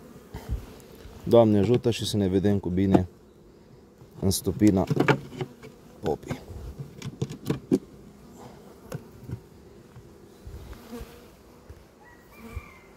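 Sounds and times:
honey bees buzzing: 0:00.0 - 0:12.9
knocks and taps on hive parts: 0:01.6 - 0:01.9, 0:02.8 - 0:03.1, 0:04.0 - 0:07.9, 0:08.9 - 0:10.1.

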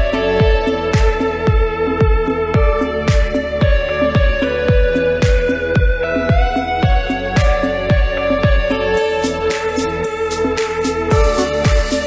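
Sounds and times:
deep kick drum beat: 0:00.0 - 0:12.0.

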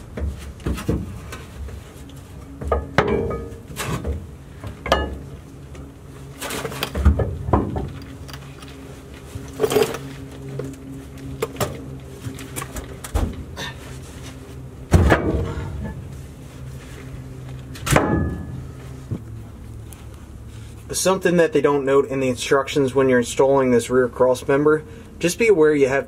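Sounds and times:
steel hitch scraping and clunking: 0:00.0 - 0:10.8, 0:11.4 - 0:19.2
steady low hum: 0:00.0 - 0:26.0.

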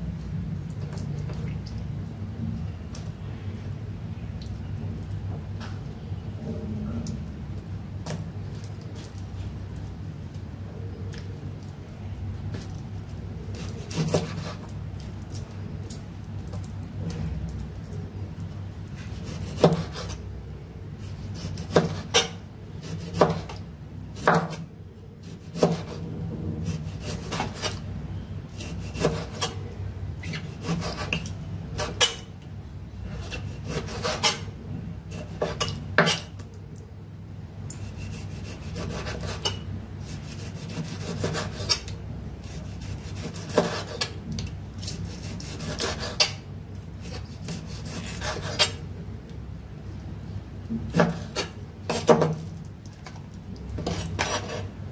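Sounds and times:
knife sawing through meat: 0:33.3 - 0:34.4, 0:37.8 - 0:41.8, 0:42.4 - 0:44.1, 0:44.8 - 0:46.3, 0:47.0 - 0:48.7.

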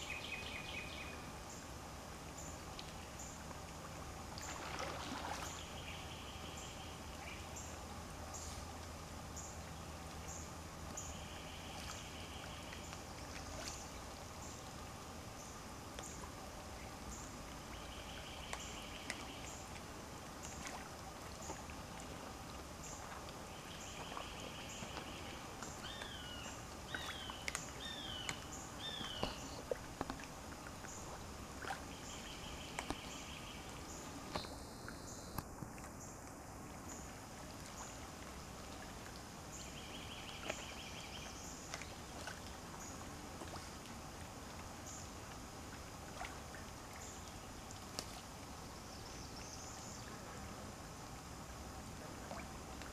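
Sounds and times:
water lapping and splashing: 0:00.0 - 0:52.9
small clicks and drips: 0:02.3 - 0:05.6, 0:11.7 - 0:14.9, 0:17.1 - 0:49.9, 0:51.1 - 0:52.9.

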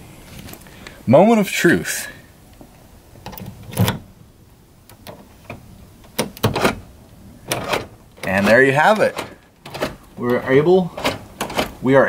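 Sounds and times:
key clicking and rattling in lock: 0:07.5 - 0:10.4, 0:11.0 - 0:11.8.

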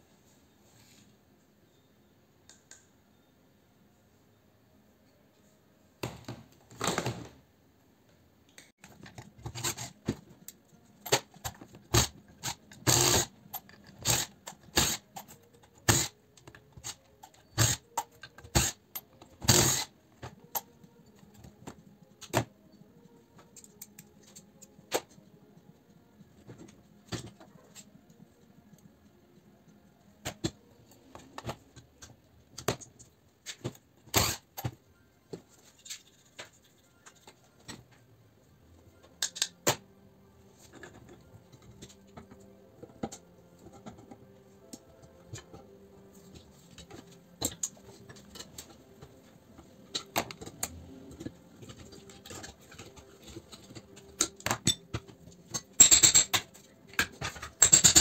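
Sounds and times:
small metal parts clinking: 0:55.6 - 0:56.4, 0:57.4 - 0:58.0.

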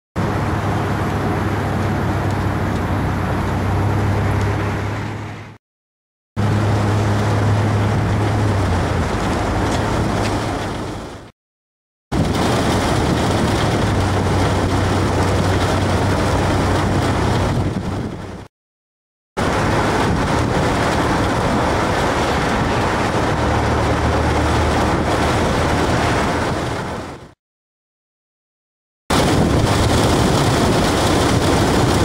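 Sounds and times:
strong wind on microphone: 0:12.1 - 0:18.5, 0:19.4 - 0:27.4, 0:29.1 - 0:32.0.

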